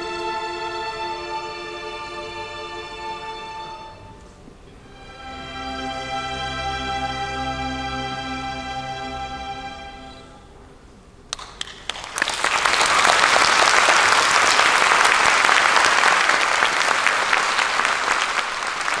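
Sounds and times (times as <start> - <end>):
audience applause: 11.3 - 19.0.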